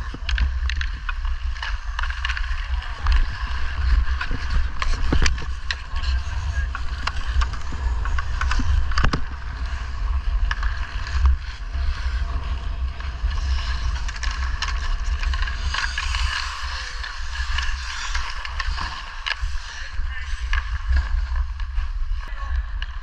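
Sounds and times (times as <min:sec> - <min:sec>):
ice skates scraping: 0:00.0 - 0:23.0
wind rumble on microphone: 0:00.0 - 0:23.0
stick hitting puck: 0:00.1 - 0:05.8, 0:13.3 - 0:19.5.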